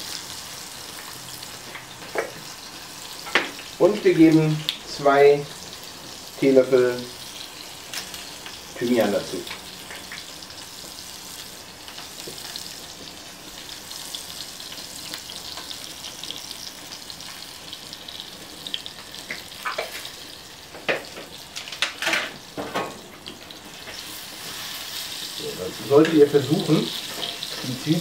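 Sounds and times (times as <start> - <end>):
onions sizzling in oil: 0.0 - 28.0.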